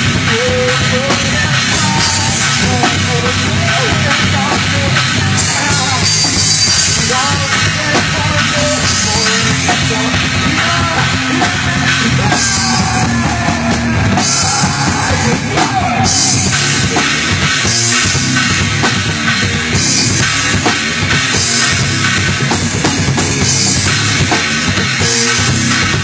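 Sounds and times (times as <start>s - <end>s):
guitars: 0.0s - 26.0s
pounding drum kit: 0.0s - 26.0s
singer shouting: 0.2s - 17.5s.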